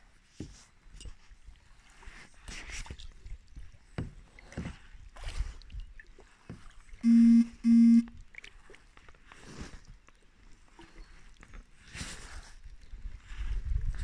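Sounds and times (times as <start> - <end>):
water swishing and lapping: 0.1 - 7.1, 8.2 - 14.0
short electronic beeps: 7.0 - 8.1.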